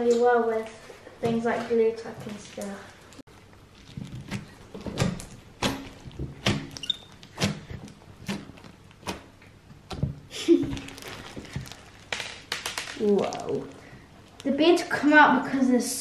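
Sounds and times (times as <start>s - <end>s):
slime crackling and popping: 2.2s - 15.0s.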